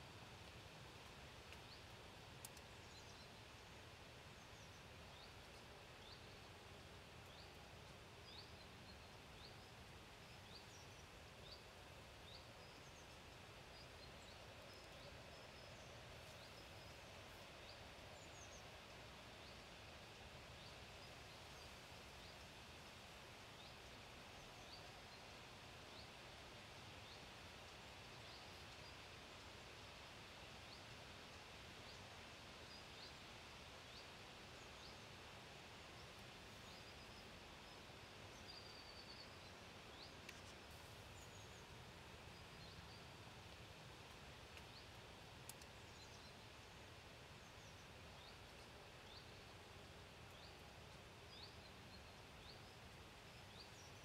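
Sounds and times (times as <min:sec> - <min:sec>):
faint outdoor background hiss: 0:00.0 - 0:54.0
small clicks: 0:45.5 - 0:45.7.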